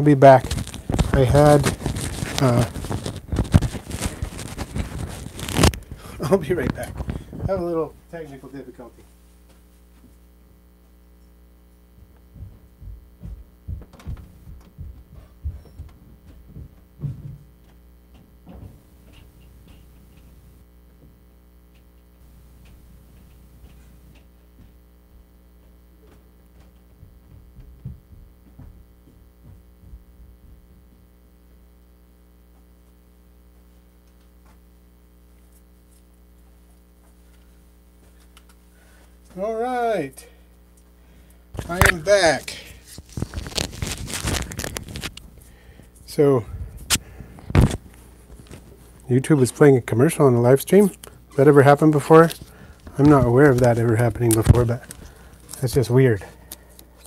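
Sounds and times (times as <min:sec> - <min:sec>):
steady electrical hum: 0:00.0 - 0:57.0
soft low thumps: 0:11.9 - 0:20.3, 0:24.6 - 0:31.1.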